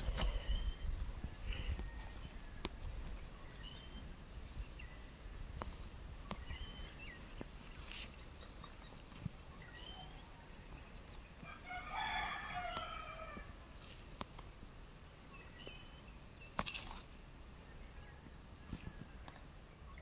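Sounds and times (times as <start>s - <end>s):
rooster crowing: 11.5s - 13.5s.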